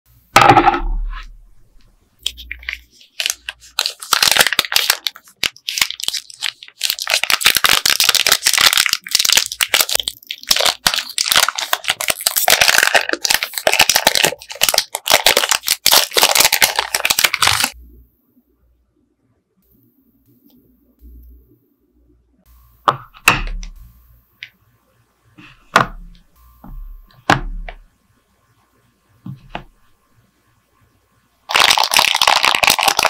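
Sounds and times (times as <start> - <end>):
candy wrappers crinkling: 2.2 - 17.8, 31.5 - 33.0.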